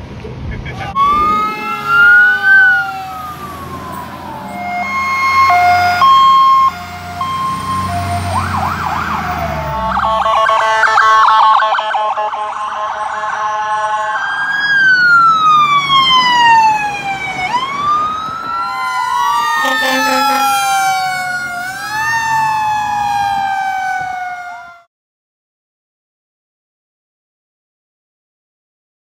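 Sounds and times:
emergency sirens wailing: 0:00.7 - 0:24.9
horn blast: 0:01.0 - 0:03.5, 0:19.6 - 0:21.2.

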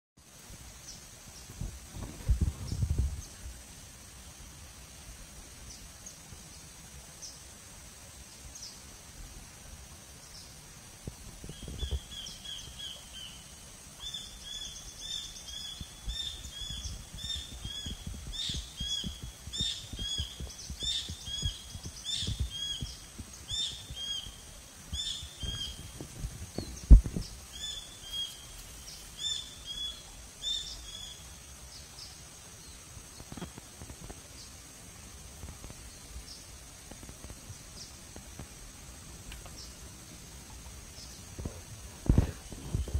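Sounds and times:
bird chirping: 0:11.5 - 0:32.8
sharp low thump: 0:25.4 - 0:27.3.

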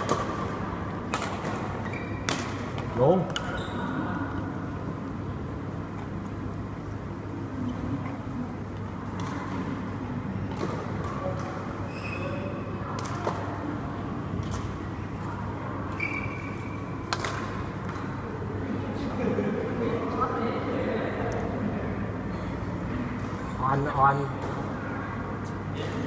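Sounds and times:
racket hitting shuttlecock: 0:00.0 - 0:03.6, 0:17.0 - 0:18.1
hall background noise: 0:00.0 - 0:26.0
shoe squeaks on court: 0:01.8 - 0:02.3, 0:03.4 - 0:03.9, 0:11.9 - 0:12.5, 0:16.0 - 0:16.8.

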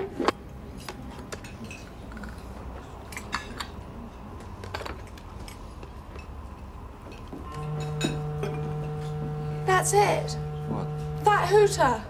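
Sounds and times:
crockery and glassware clinking: 0:07.1 - 0:08.3
low steady room hum: 0:07.5 - 0:12.0.

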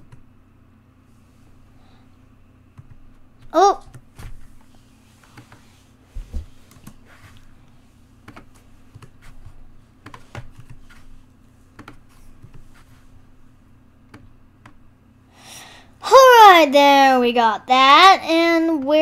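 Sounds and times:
low steady hum: 0:00.0 - 0:19.0
keyboard keys tapping: 0:08.2 - 0:11.1, 0:11.7 - 0:12.7.

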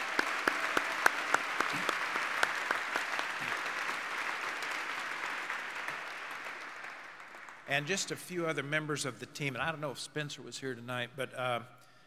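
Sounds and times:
close hand claps: 0:00.0 - 0:07.9
audience applause: 0:00.0 - 0:08.2.

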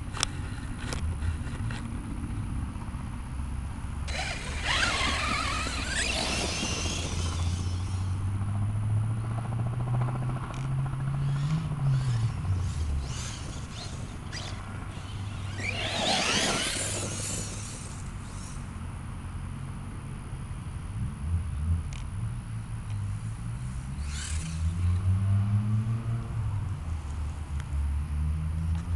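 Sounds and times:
steady low hum: 0:00.0 - 0:25.0
rc truck motor whine: 0:04.0 - 0:08.7, 0:10.5 - 0:18.8, 0:23.8 - 0:25.2.

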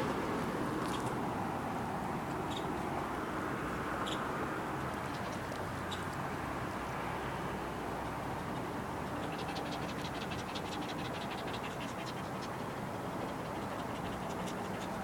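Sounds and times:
small dog panting: 0:09.4 - 0:15.0.

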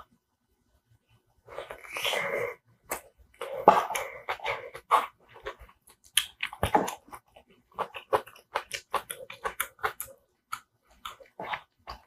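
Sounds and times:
wet chewing clicks: 0:02.9 - 0:12.0.

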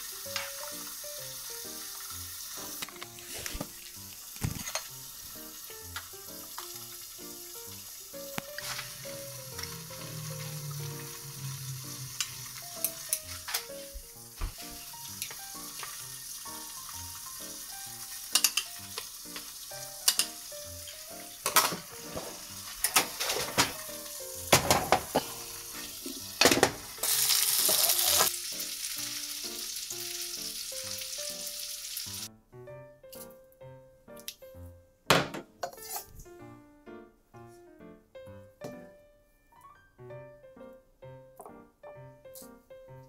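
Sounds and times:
soup bubbling and sizzling in pot: 0:00.0 - 0:32.3.

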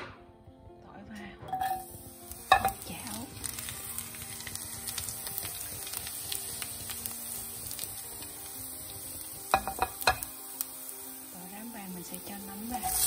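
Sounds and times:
background music: 0:00.0 - 0:13.0
garlic sizzling in oil: 0:01.5 - 0:13.0.

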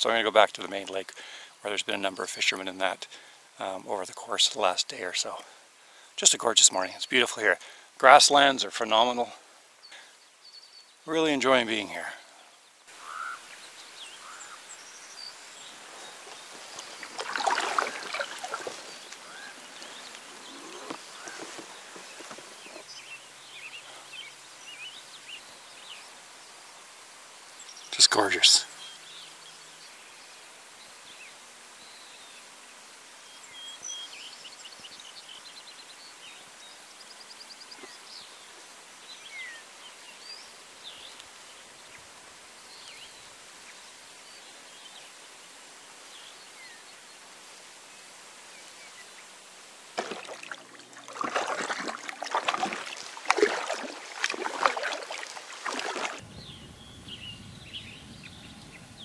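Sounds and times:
kayak scraping through reeds: 0:15.7 - 0:23.0, 0:50.0 - 0:56.2.

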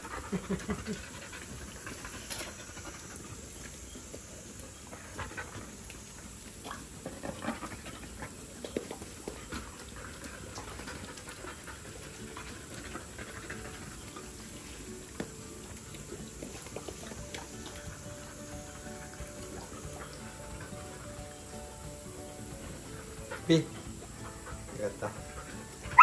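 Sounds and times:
hose spraying water on concrete: 0:00.0 - 0:26.0
puppies panting: 0:00.0 - 0:26.0
splashes and clicks: 0:13.5 - 0:18.0.

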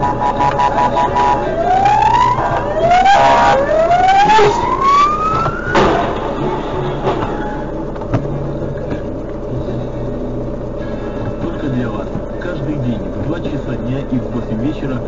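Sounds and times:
siren wailing: 0:00.0 - 0:07.9
traffic noise: 0:00.0 - 0:15.0
car collision bang: 0:04.9 - 0:08.2.

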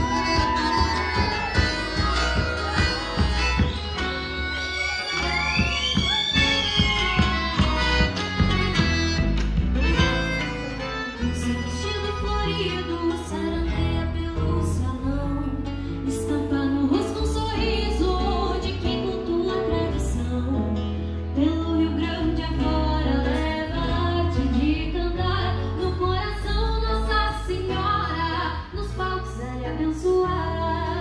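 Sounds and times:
strummed acoustic guitars: 0:06.4 - 0:14.8.

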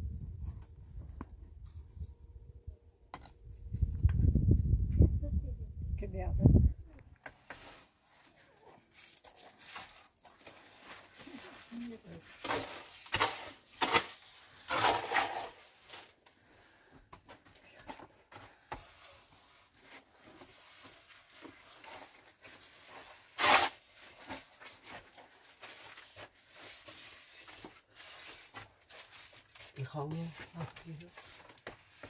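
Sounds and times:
light scrapes and rustles: 0:07.2 - 0:32.0.

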